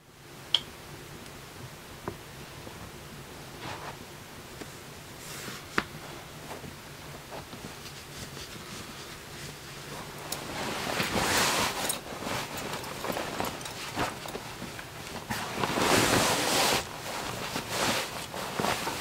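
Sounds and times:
soft small movements: 0:04.6 - 0:19.0
clothing rustling: 0:05.1 - 0:19.0.

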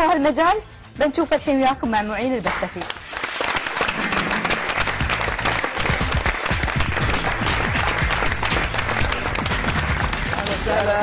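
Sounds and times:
music playing: 0:00.0 - 0:11.0
audience applauding: 0:03.1 - 0:11.0.

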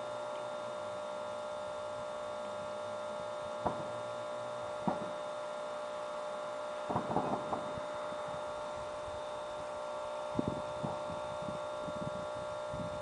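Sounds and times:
steady electrical hum: 0:00.0 - 0:13.0
fireworks bangs and pops: 0:03.6 - 0:05.4, 0:06.8 - 0:08.5, 0:10.4 - 0:11.4.

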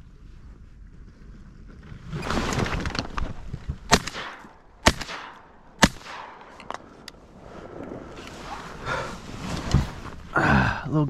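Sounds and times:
shotgun shots: 0:03.9 - 0:06.6
rustling: 0:06.4 - 0:10.4.

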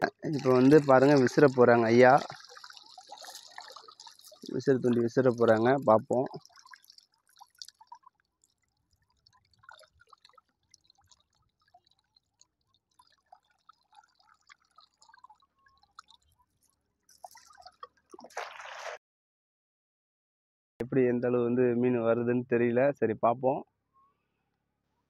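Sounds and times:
water dripping from net: 0:00.2 - 0:18.9
net splashing into river: 0:17.2 - 0:19.0.

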